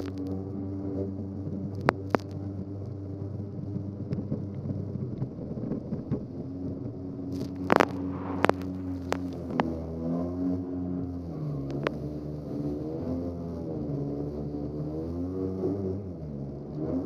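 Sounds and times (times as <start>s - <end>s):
watercraft engine running: 0.0s - 17.0s.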